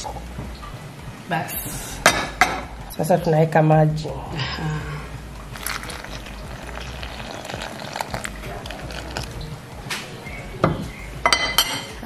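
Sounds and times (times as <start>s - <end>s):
water pouring into bowl: 5.5s - 9.4s.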